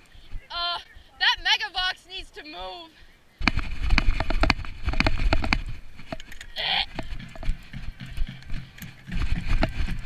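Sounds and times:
camera handling rumble and knocks: 3.4 - 10.0.

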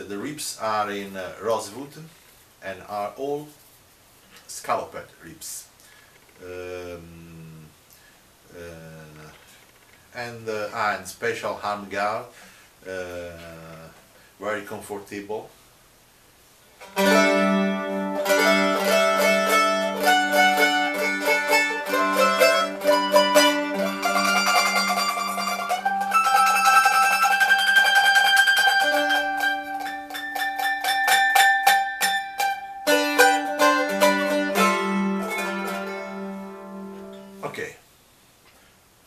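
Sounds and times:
mandolin melody: 16.8 - 37.7.

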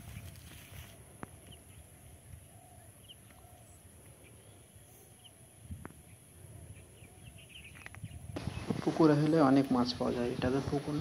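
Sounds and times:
faint bird chirps: 0.0 - 8.8.

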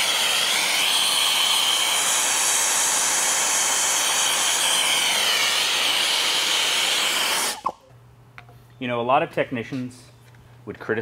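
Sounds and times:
torch flame hissing: 0.0 - 7.7.

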